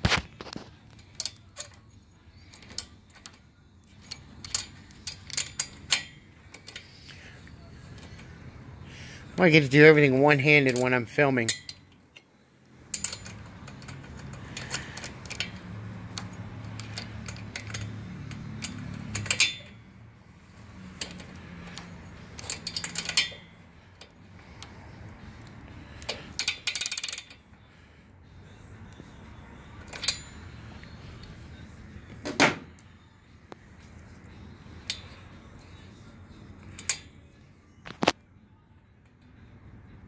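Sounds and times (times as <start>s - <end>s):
metal hand tools clicking: 1.1s - 7.2s, 12.9s - 19.8s, 21.0s - 24.1s, 26.0s - 27.4s.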